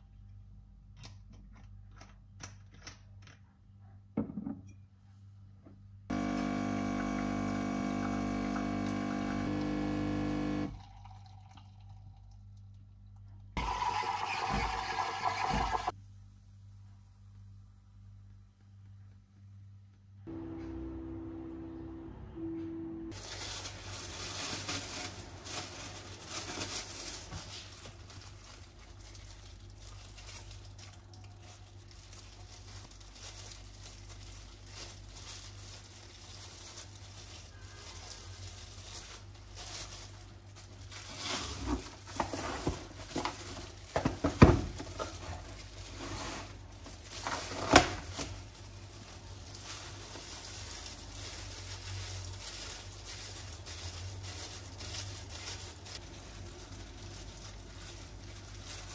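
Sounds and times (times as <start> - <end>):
plastic gloves crinkling: 23.1 - 58.9.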